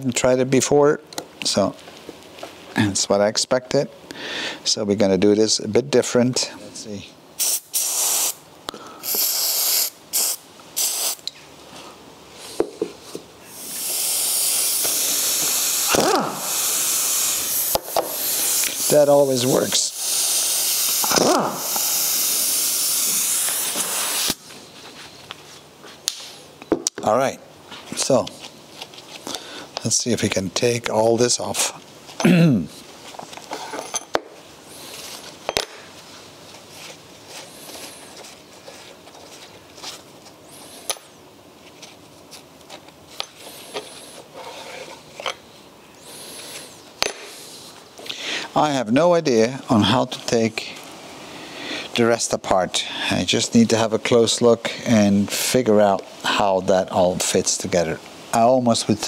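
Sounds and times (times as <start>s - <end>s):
exhaust air hissing: 7.4s - 11.3s, 13.4s - 24.5s
pneumatic wrench running: 13.5s - 24.4s.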